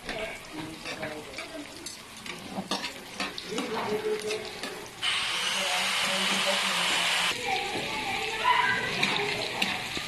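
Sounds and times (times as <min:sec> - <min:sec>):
food sizzling in oil: 0:00.0 - 0:10.0.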